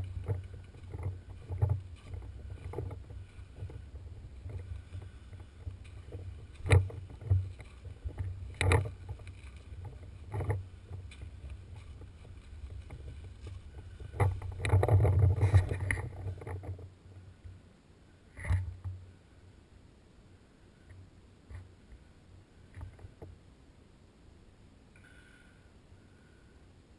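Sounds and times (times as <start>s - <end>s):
gear rustling through dry brush: 0.0s - 17.5s.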